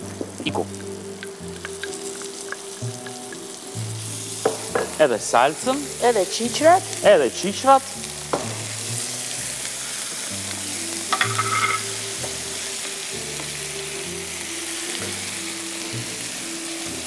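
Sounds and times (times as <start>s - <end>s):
food sizzling in frying pan: 0.0s - 17.0s
spatula clatter: 11.1s - 11.9s.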